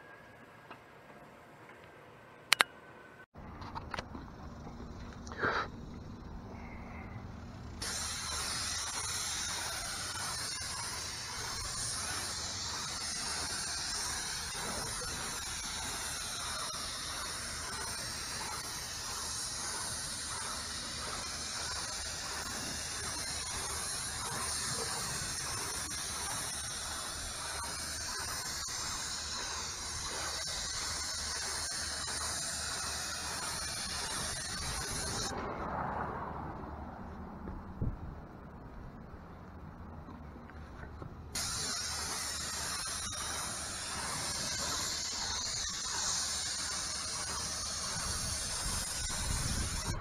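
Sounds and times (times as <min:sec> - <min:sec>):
pressure washer spraying wood: 0:07.8 - 0:35.4, 0:41.3 - 0:50.0.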